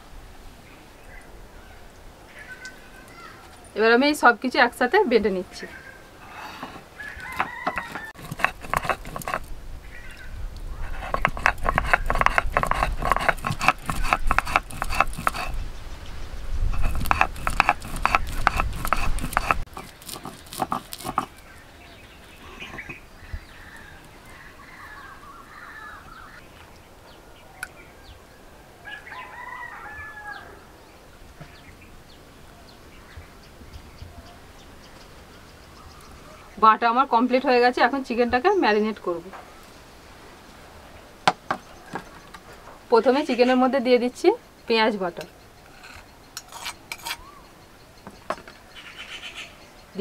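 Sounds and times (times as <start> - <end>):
chickens calling: 5.4 - 15.6, 16.7 - 26.4
stone grinding on grinding stone: 6.2 - 9.5, 10.8 - 15.6, 16.7 - 21.4, 22.6 - 23.0, 45.6 - 47.3.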